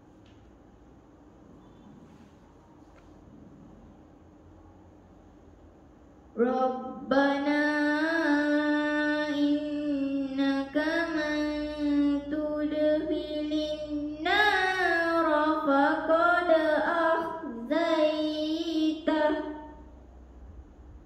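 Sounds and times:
girl reciting melodically: 6.3s - 20.0s.

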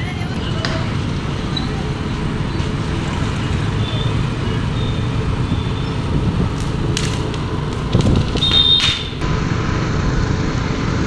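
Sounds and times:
road and wind noise of vehicle: 0.0s - 11.0s
sharp clicks: 6.4s - 9.2s.

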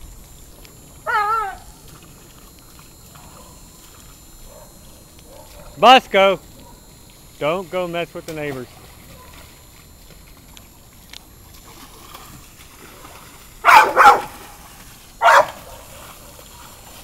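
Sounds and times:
dog barking: 3.2s - 3.6s, 4.5s - 5.8s, 9.1s - 9.4s, 13.6s - 14.4s, 15.2s - 16.0s.

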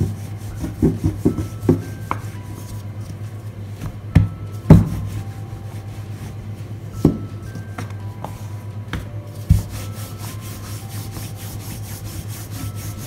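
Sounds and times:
rolling pin rolling dough: 0.0s - 13.0s
rolling pin knocking on board: 0.6s - 2.4s, 3.9s - 5.1s, 7.0s - 9.8s.

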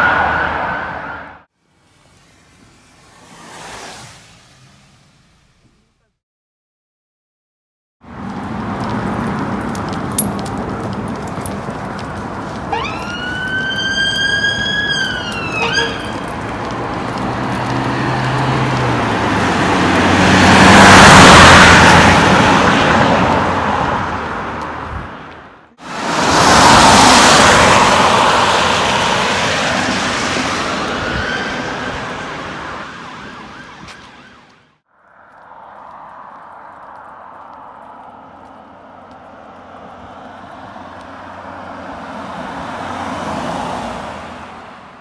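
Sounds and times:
vehicle passing at speed: 2.3s - 5.5s, 8.1s - 34.4s, 35.0s - 45.0s
siren wailing: 12.6s - 16.4s, 30.4s - 34.7s.

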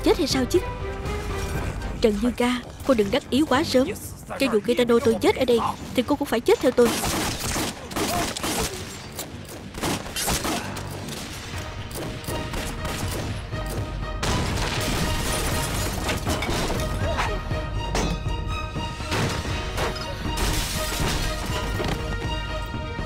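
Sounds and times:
dramatic film music: 0.0s - 23.0s
gunshots: 6.8s - 11.6s.

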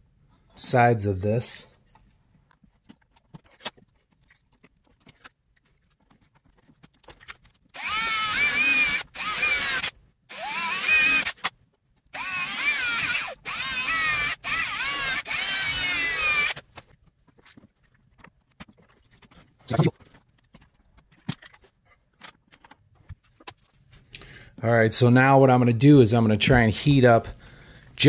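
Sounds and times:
electric drill whining in bursts: 7.8s - 11.4s, 12.2s - 16.6s.

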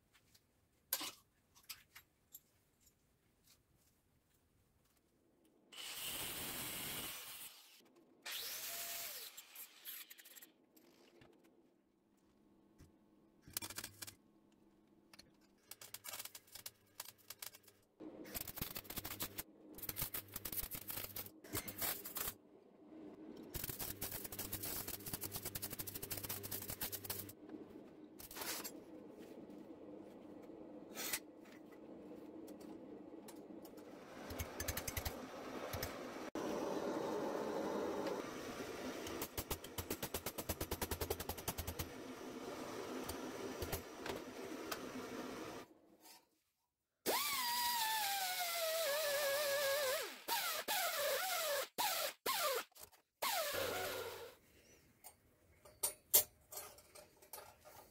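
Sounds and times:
welding crackle: 18.3s - 22.4s, 23.5s - 27.4s.

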